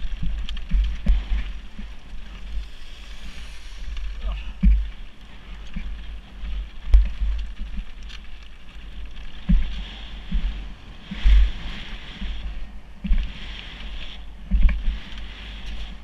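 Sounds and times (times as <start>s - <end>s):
wheels thumping on rocks: 0.0s - 2.6s, 4.0s - 12.4s
bike tyres crunching on gravel: 0.0s - 16.0s
wind on microphone: 0.0s - 16.0s.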